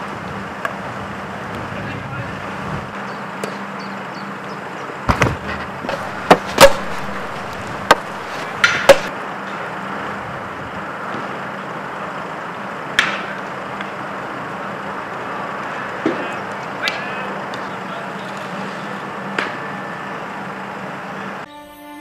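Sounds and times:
hockey sticks hitting ball: 5.1s - 9.1s, 13.0s - 14.0s, 15.6s - 18.6s, 19.3s - 19.7s.

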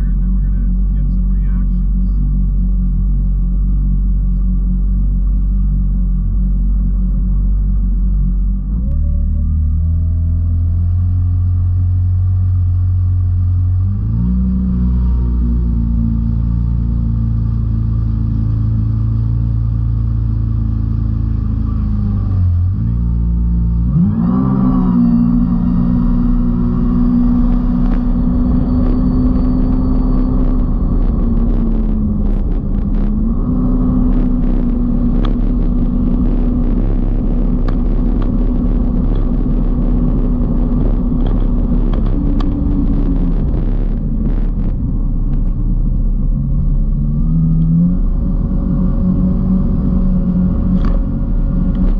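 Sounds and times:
jet ski engine running: 0.0s - 51.9s.

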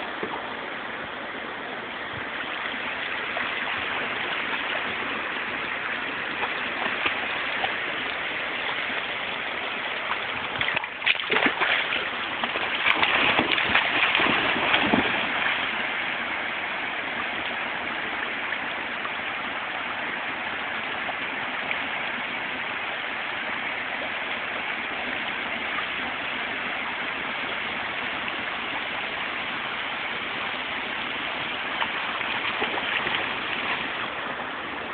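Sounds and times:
flowing river water: 0.0s - 34.9s
dog swimming splashing: 2.7s - 16.2s, 31.6s - 34.9s.

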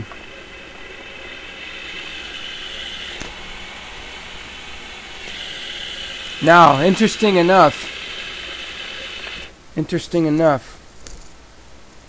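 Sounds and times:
motor mechanical whir: 0.0s - 9.5s.

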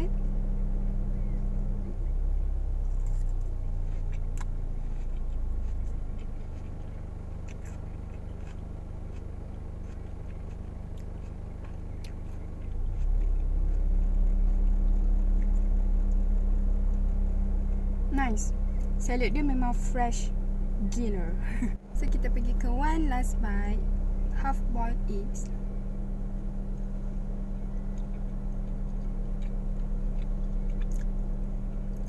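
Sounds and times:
car engine idling: 0.0s - 32.0s
person chewing salad: 2.8s - 17.6s, 26.6s - 32.0s.

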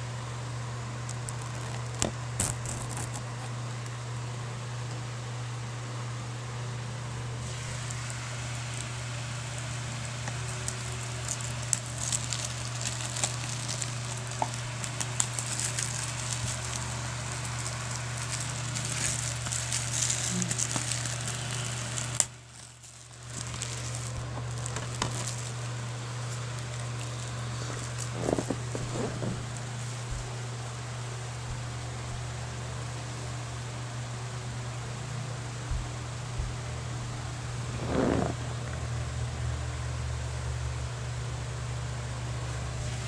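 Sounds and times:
steady low hum: 0.0s - 43.0s
plastic wrap crinkling: 0.9s - 3.5s, 7.4s - 30.4s.

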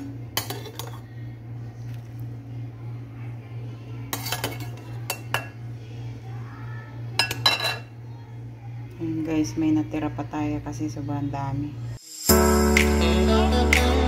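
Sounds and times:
dishware and utensils clinking: 0.4s - 1.0s, 4.1s - 5.6s, 7.2s - 7.9s.

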